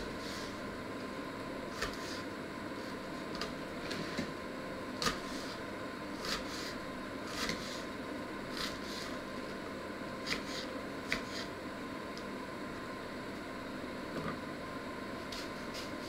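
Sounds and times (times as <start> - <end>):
steady low hum: 0.0 - 16.0
knife chopping on wooden board: 10.2 - 11.5.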